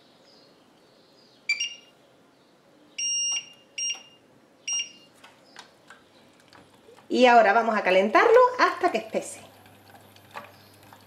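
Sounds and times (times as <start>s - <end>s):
hob touch control beeps: 1.5s - 1.9s, 3.0s - 5.1s.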